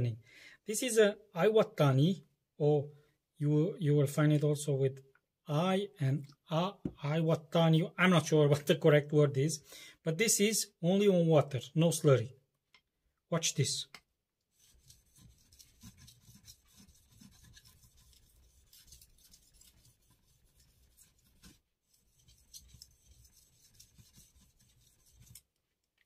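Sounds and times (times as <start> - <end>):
knife scraping on whetstone: 14.5 - 25.5.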